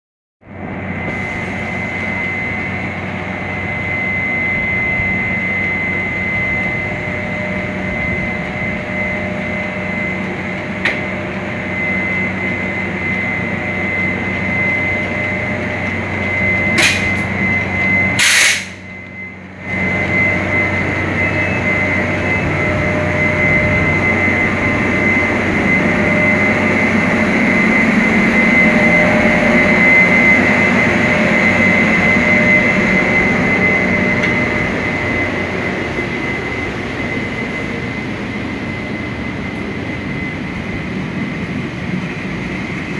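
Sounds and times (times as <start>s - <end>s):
electric locomotive hum and whine: 0.4s - 42.9s.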